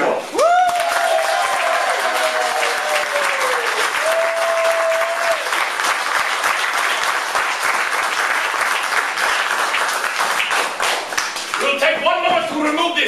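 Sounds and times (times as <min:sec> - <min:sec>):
crowd whooping: 0:00.3 - 0:05.6
audience applauding: 0:00.3 - 0:12.9.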